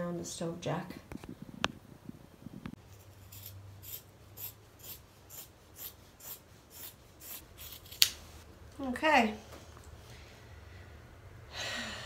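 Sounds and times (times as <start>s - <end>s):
scissors cutting canvas: 3.2s - 8.2s.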